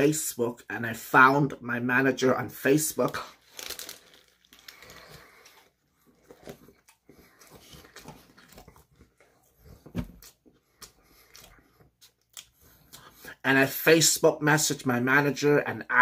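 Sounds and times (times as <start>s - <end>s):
person chewing food: 4.0s - 13.3s.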